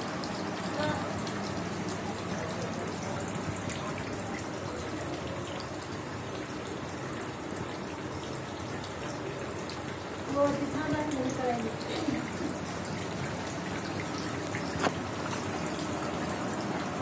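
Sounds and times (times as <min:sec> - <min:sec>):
running water trickling: 0:00.0 - 0:17.0.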